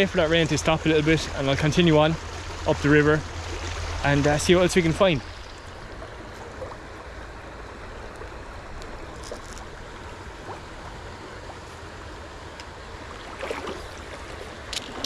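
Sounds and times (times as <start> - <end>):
river running over stones: 0.0 - 15.0
fishing tackle clicks: 14.7 - 15.0.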